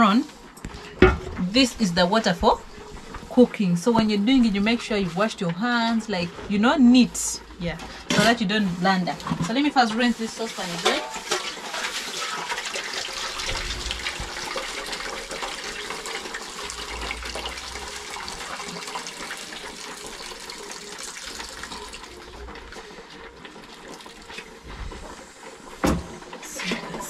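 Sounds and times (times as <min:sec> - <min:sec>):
water splashing into saucepan: 0:10.6 - 0:22.8.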